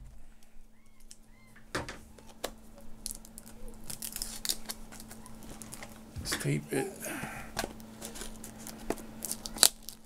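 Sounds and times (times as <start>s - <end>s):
plastic wrapping crinkling: 2.1s - 6.1s, 7.5s - 10.0s.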